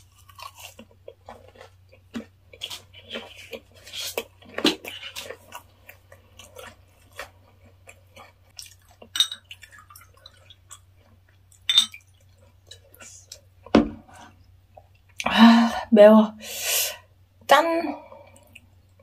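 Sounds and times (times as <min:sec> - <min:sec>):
wet chewing and mouth clicks: 0:00.0 - 0:13.5, 0:18.3 - 0:19.0.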